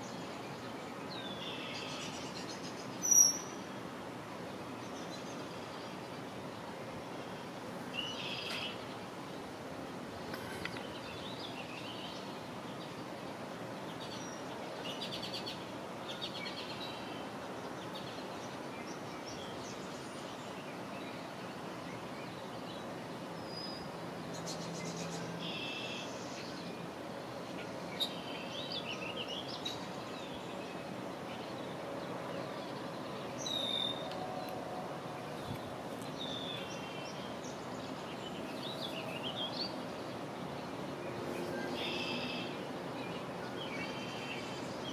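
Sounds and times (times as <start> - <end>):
steady background hiss: 0.0 - 44.9
small birds chirping: 35.2 - 44.9.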